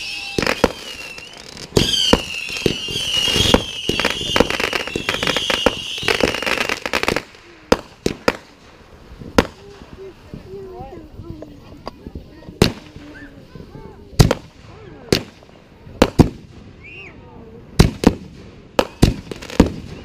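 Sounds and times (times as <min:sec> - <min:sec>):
high wavering whistle: 0:00.0 - 0:06.2
firework bangs and crackle: 0:00.0 - 0:20.0.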